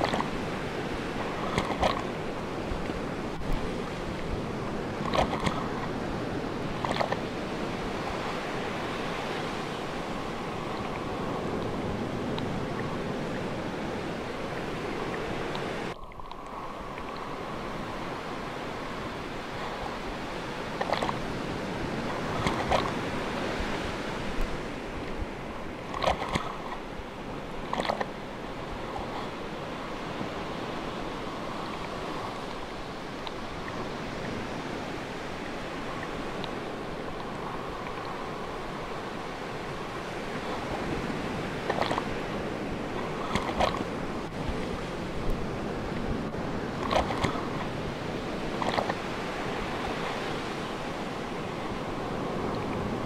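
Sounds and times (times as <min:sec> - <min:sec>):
ocean waves surf: 0:00.0 - 0:53.0.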